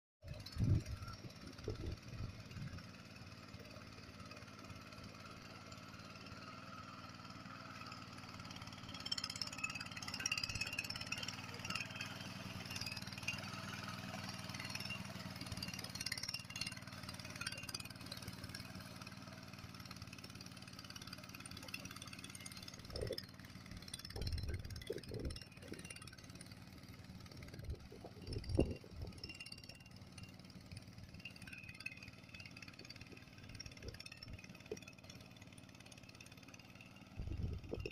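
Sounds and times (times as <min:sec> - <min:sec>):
power tiller engine running: 0:00.2 - 0:37.9
tines churning mud: 0:00.3 - 0:37.9.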